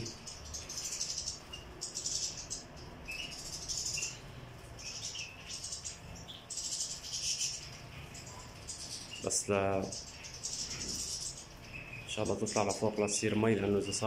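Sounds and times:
finches chirping: 0.0 - 14.0.

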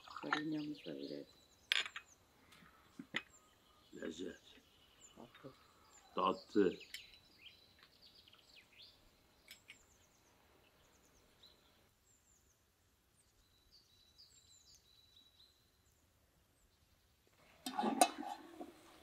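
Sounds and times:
faint birds chirping: 0.0 - 19.0.

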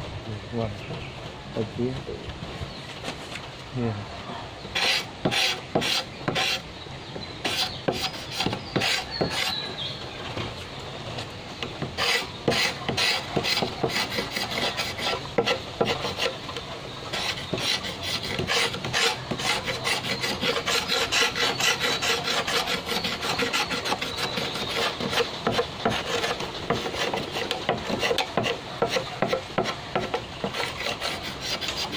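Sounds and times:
blade scraping bamboo: 4.7 - 6.7, 7.4 - 9.9, 11.7 - 31.9.

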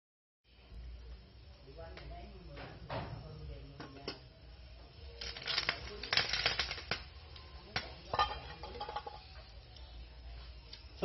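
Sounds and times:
metal pot lid clattering: 8.1 - 9.3.

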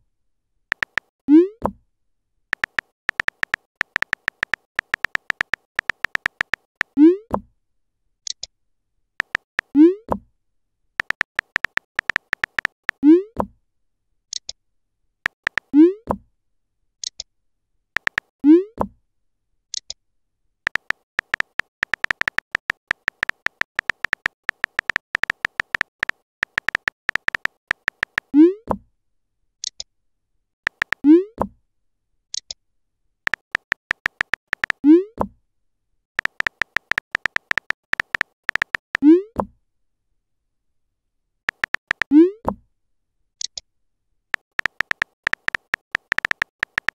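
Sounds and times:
keyboard tap clicks: 0.7 - 1.1, 2.6 - 6.9, 9.2 - 9.5, 11.0 - 13.0, 15.3 - 15.7, 18.0 - 18.3, 20.7 - 28.3, 30.7 - 31.0, 33.3 - 34.8, 36.2 - 39.0, 41.5 - 42.1, 44.4 - 46.9.

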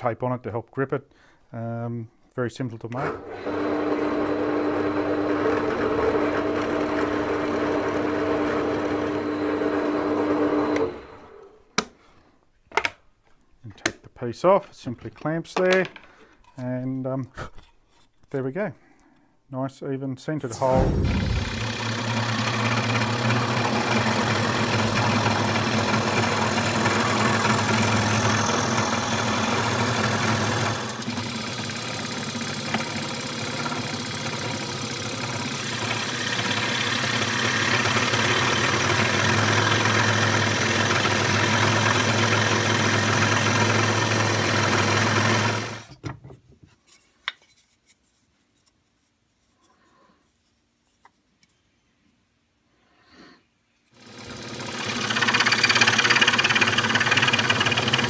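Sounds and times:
scroll saw cutting wood: 2.9 - 11.6, 20.5 - 45.9, 53.9 - 58.0.

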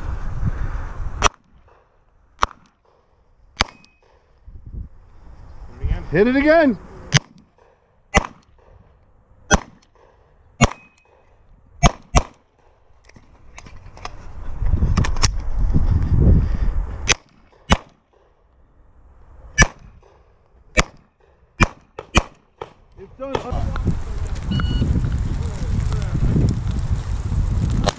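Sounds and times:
pistol shots: 3.6 - 4.4, 7.1 - 8.9, 9.5 - 12.8, 17.1 - 18.3, 19.6 - 23.5
low rumbling movement noise: 12.4 - 17.6, 22.8 - 27.9.

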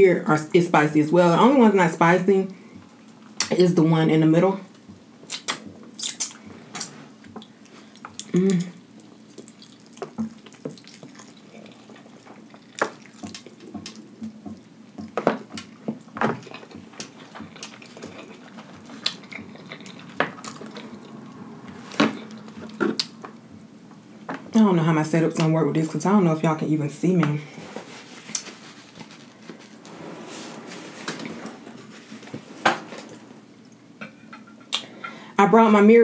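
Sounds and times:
wet mouth clicks and smacks: 5.3 - 6.4.

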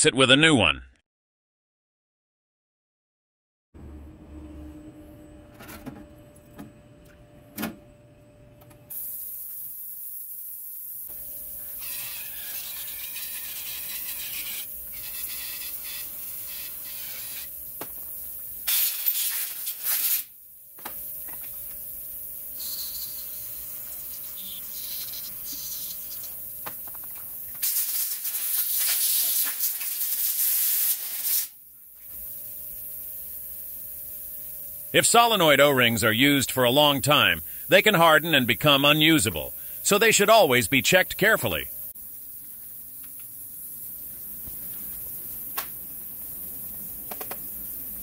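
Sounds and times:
aerosol spray hissing: 8.9 - 11.0, 22.6 - 26.5, 27.6 - 31.5
faint steady hum: 31.6 - 48.0.

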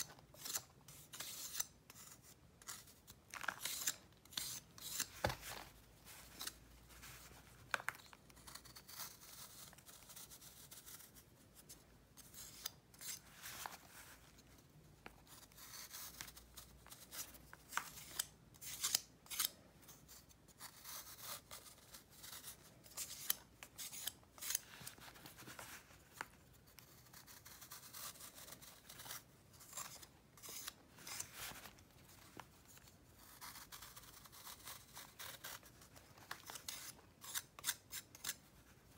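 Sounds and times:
knife scraping powder block: 0.0 - 5.1, 8.4 - 11.2, 12.2 - 13.7, 15.3 - 25.0, 26.7 - 31.6, 33.2 - 38.6.

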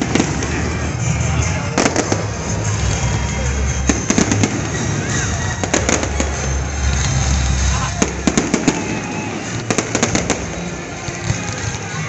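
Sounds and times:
background music: 0.0 - 12.0
fireworks bangs and crackles: 0.0 - 12.0.

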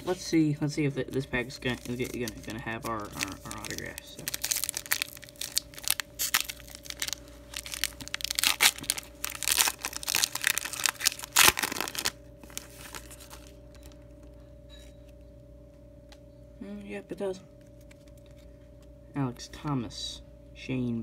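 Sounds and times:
foil wrapper tearing and crinkling: 1.5 - 13.6.

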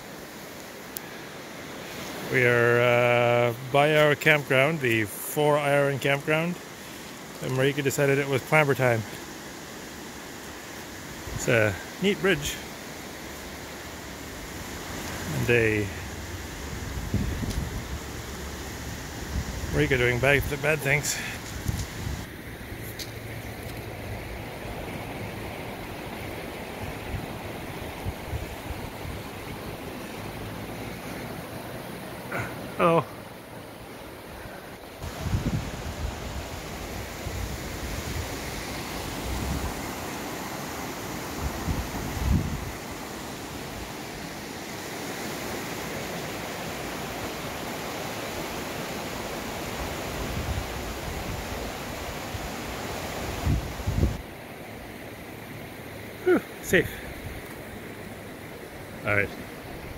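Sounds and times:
rocky river rushing: 0.0 - 59.9
wind bumps on microphone: 16.6 - 18.1, 35.0 - 36.5, 41.4 - 42.8, 53.3 - 54.2.

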